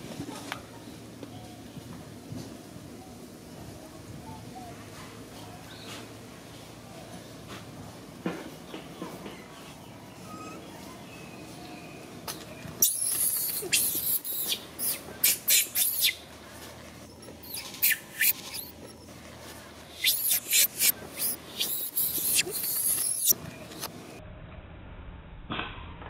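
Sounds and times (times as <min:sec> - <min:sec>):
monkeys screaming: 0:12.8 - 0:16.2, 0:17.4 - 0:18.7, 0:20.0 - 0:23.4.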